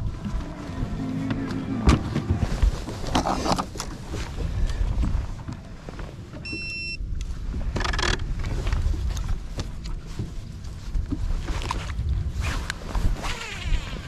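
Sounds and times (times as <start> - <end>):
water against boat: 0.0 - 14.0
wind on microphone: 0.0 - 14.0
short electronic beep: 6.4 - 7.0.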